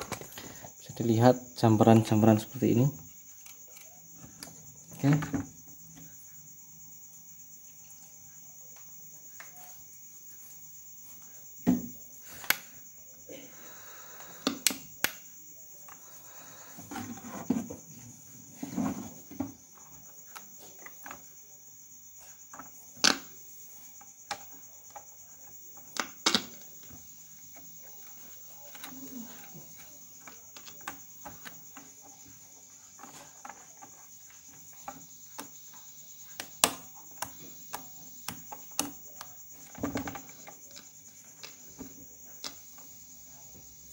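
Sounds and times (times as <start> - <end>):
knocks and clicks of handling: 0.0 - 0.7, 22.5 - 43.9.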